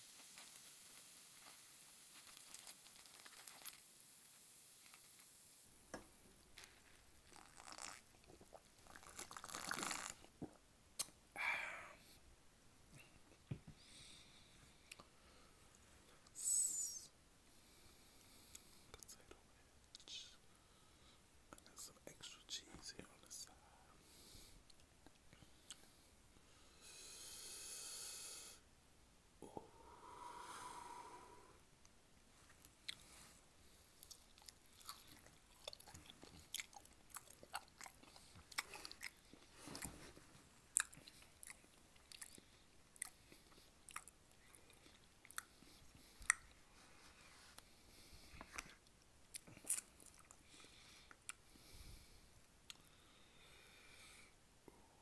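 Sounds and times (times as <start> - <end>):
crackly sip of fizzy soda: 6.6 - 11.2
soft breathing: 11.4 - 12.3, 12.9 - 24.7, 29.4 - 31.7, 44.4 - 48.9, 50.3 - 55.0.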